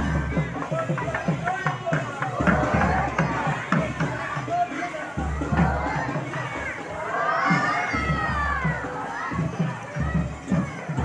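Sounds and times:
crowd noise: 0.0 - 11.0
drum beats: 0.0 - 11.0.

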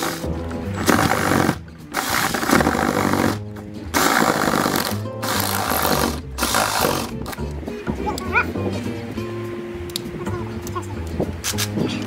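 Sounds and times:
jigsaw cutting plywood: 0.8 - 3.4, 4.0 - 7.1.

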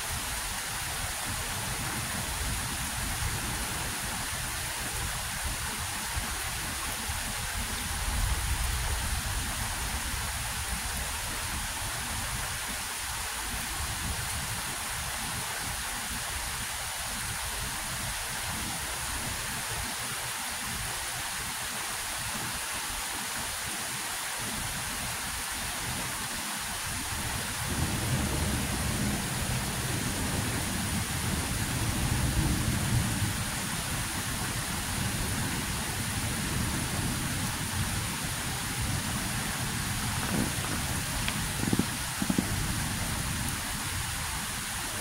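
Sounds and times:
steady rain hiss: 0.0 - 45.0
low rumble of thunder: 27.4 - 43.6.

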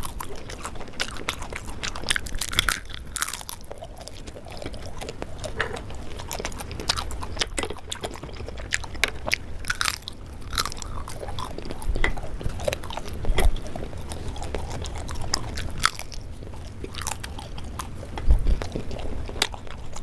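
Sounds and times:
crunchy biting and chewing: 0.0 - 20.0
dull low thumps: 18.2 - 18.8.

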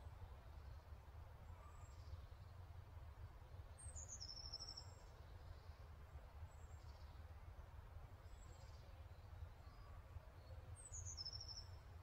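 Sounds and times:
faint high bird chirp: 3.7 - 5.7, 8.3 - 11.9.

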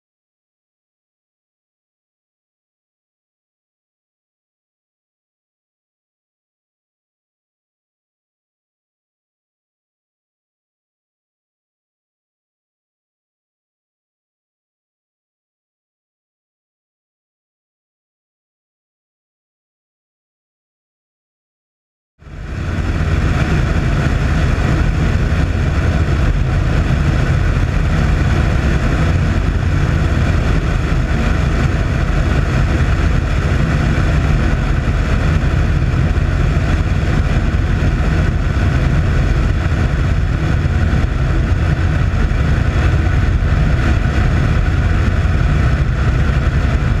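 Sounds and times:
rushing air: 22.2 - 47.0
twin propeller engines droning: 22.2 - 47.0.

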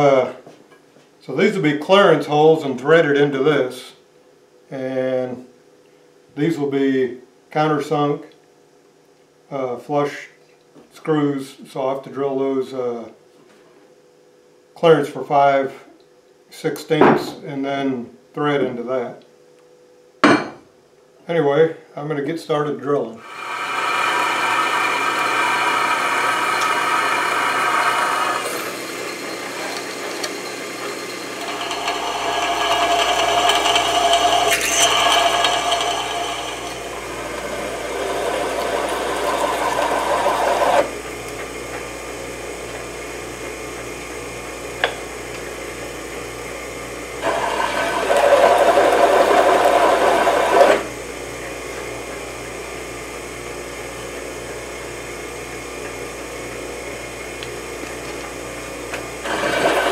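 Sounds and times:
drill bit cutting steel whine: 23.2 - 41.0, 47.2 - 51.0, 59.2 - 59.9
drill press motor humming: 23.2 - 59.9.

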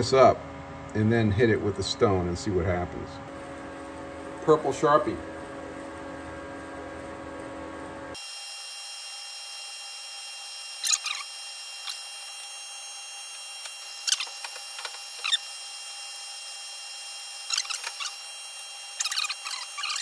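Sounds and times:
lathe running with whine: 3.3 - 19.8
marker scratchy squeaks: 10.8 - 12.0, 14.0 - 15.5, 17.5 - 18.3, 19.0 - 20.0.

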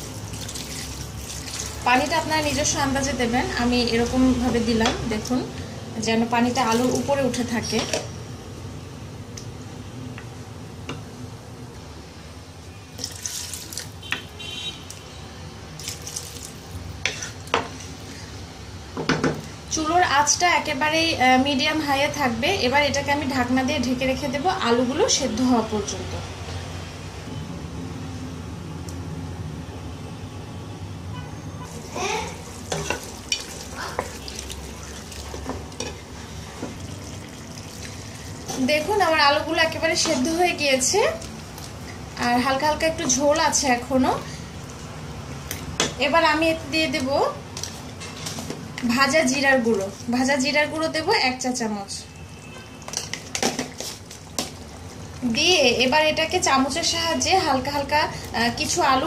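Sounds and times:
liquid sloshing in a pan: 0.0 - 2.5, 31.7 - 39.1
wooden spoon stirring in pot: 16.4 - 18.2, 31.7 - 42.2, 47.0 - 50.2, 52.4 - 56.0.

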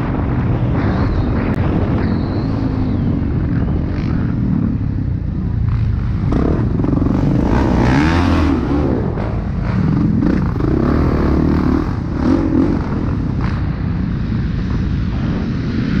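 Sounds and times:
motocross bike engine revving: 3.6 - 15.9.

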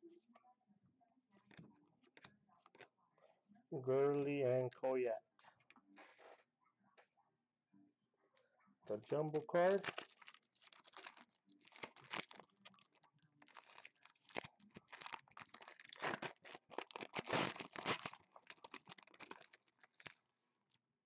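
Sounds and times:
wrapper crinkling and rustling: 9.0 - 20.8
scissors cutting a wrapper: 9.6 - 20.2.

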